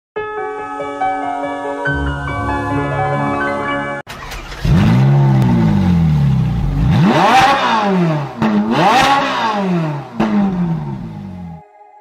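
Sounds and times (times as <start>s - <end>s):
car engine revving: 4.1s - 11.6s.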